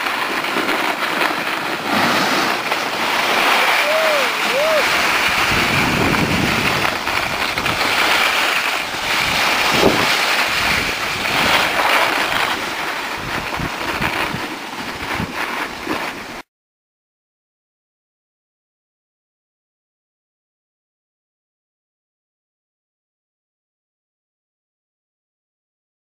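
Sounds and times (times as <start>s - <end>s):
low bumps: 0.0s - 16.4s
skis scraping on snow: 0.0s - 16.5s
wind rushing over microphone: 0.6s - 16.4s.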